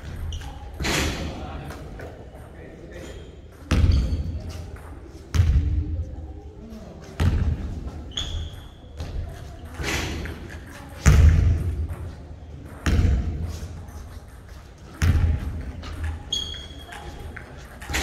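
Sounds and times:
basketball bouncing on wooden floor: 0:03.7 - 0:04.3, 0:12.7 - 0:13.5, 0:15.0 - 0:16.6
short high squeak: 0:08.1 - 0:08.8, 0:16.3 - 0:16.9.

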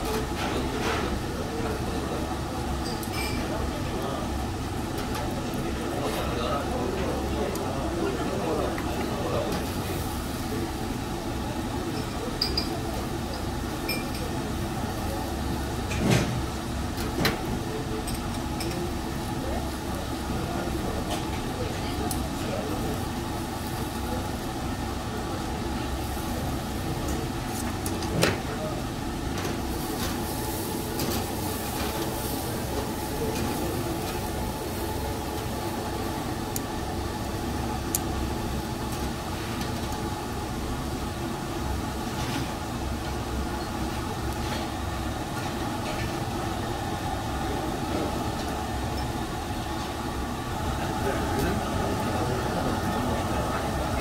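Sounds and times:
faint background chatter: 0:00.0 - 0:54.0.

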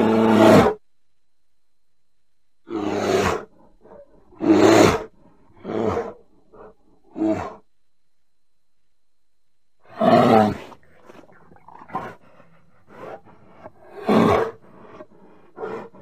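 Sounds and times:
bear calling: 0:02.7 - 0:07.7.

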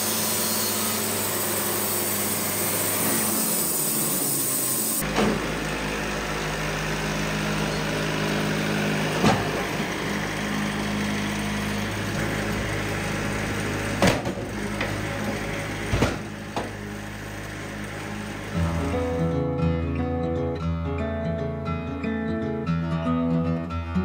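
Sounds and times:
sawmill engine idling: 0:00.0 - 0:19.4
sharp knocks of log against clamps: 0:09.2 - 0:09.6, 0:14.0 - 0:14.9.

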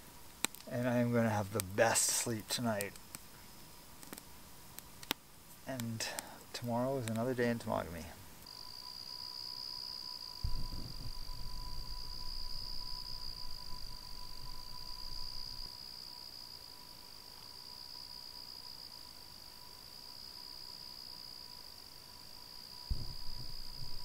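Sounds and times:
crickets trilling: 0:00.0 - 0:24.0
low steady tone: 0:06.1 - 0:16.8, 0:22.9 - 0:24.0
low rumble: 0:10.4 - 0:15.7.

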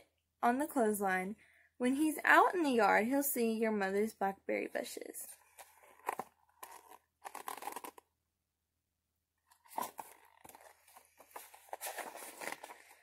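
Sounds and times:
paper pages rustling: 0:05.4 - 0:08.0, 0:09.5 - 0:13.0.

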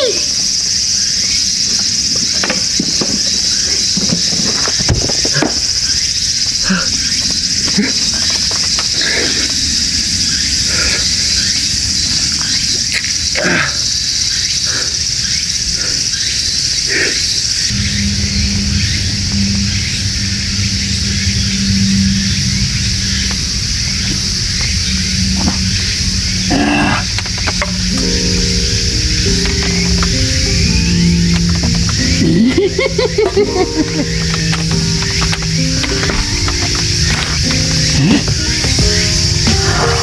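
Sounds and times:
high-pitched insect chorus: 0:00.0 - 0:40.0
short knocks and clicks: 0:34.2 - 0:39.6.

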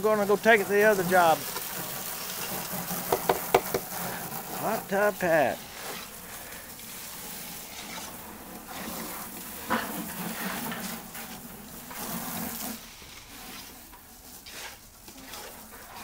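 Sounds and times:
float scraping wet concrete: 0:00.0 - 0:16.0
sharp knock: 0:03.1 - 0:03.9.

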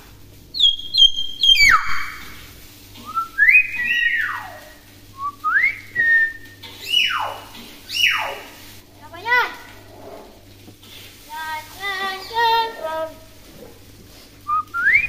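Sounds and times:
myna bird whistling: 0:00.5 - 0:02.3, 0:03.0 - 0:04.6, 0:05.2 - 0:08.5, 0:14.5 - 0:15.0.

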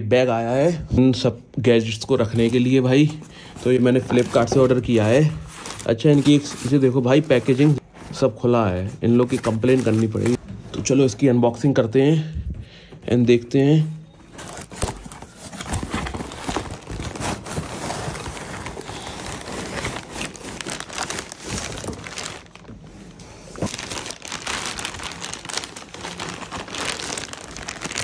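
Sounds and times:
plastic bag crinkling: 0:14.3 - 0:22.8, 0:23.4 - 0:28.0
cardboard box being opened: 0:14.4 - 0:22.5.

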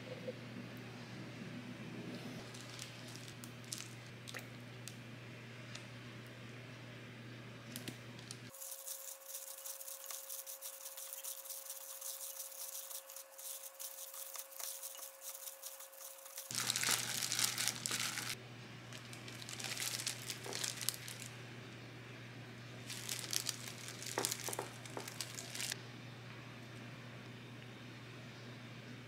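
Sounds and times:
plastic glove crinkling: 0:02.4 - 0:04.1, 0:07.8 - 0:21.4, 0:22.8 - 0:25.8.

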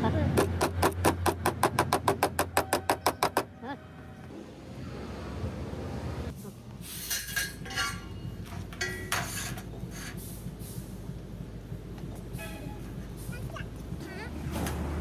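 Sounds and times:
steel bar clinking on metal sheet: 0:07.0 - 0:10.2
low steady rumble: 0:09.7 - 0:15.0.

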